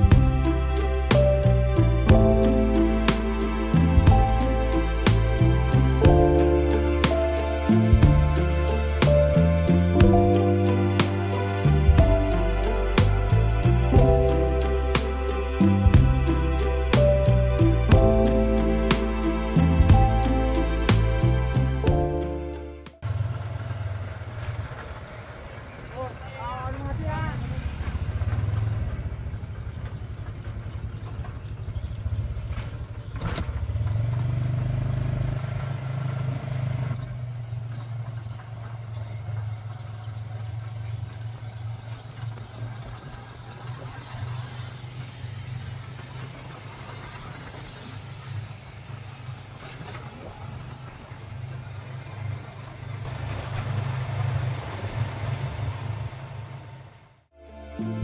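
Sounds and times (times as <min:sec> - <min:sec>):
motorcycle engine droning: 0:23.0 - 0:57.2.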